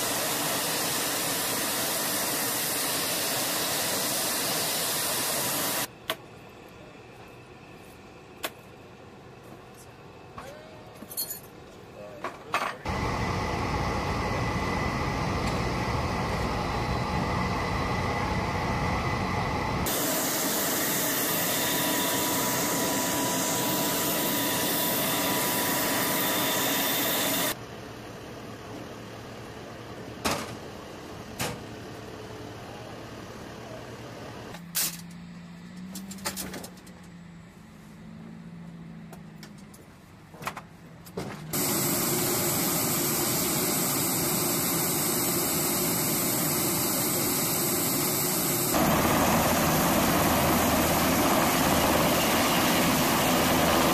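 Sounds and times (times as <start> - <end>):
helicopter turbine noise: 0.0 - 5.9, 12.9 - 30.0, 41.5 - 53.9
low hum: 12.9 - 29.3, 41.6 - 53.9.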